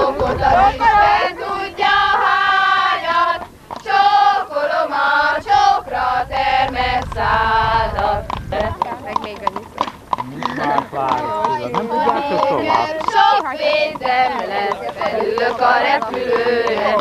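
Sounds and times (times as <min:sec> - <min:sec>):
women singing in unison: 0:00.0 - 0:08.9, 0:10.6 - 0:17.0.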